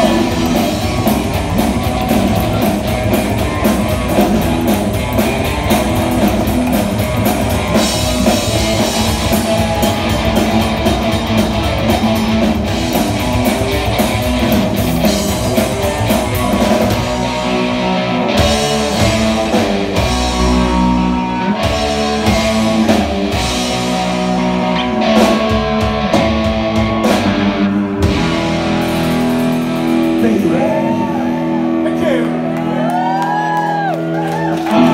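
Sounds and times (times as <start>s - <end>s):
live band playing instrumental: 0.0s - 34.9s.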